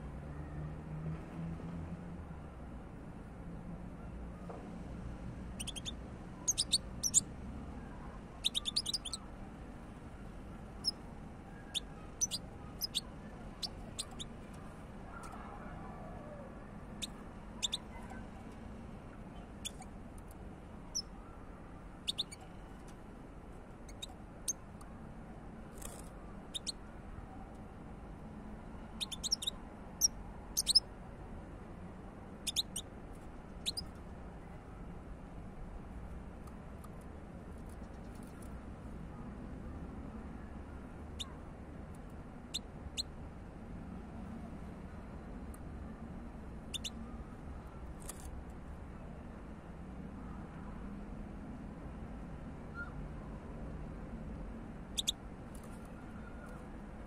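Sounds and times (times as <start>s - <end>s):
faint low background noise: 0.0s - 57.0s
goldfinch chirping: 5.6s - 5.9s, 6.5s - 7.2s, 8.4s - 9.2s, 11.6s - 14.3s, 17.0s - 17.8s, 22.0s - 22.5s, 29.0s - 30.8s, 32.5s - 32.8s, 33.6s - 33.9s, 46.7s - 47.0s, 55.0s - 55.2s.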